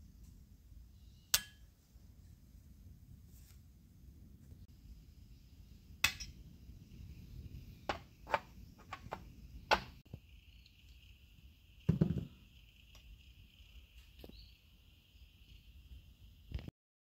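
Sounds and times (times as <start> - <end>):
cartridges clinking on metal pan: 1.3 - 1.6, 6.0 - 6.4
dull knock: 11.9 - 12.3.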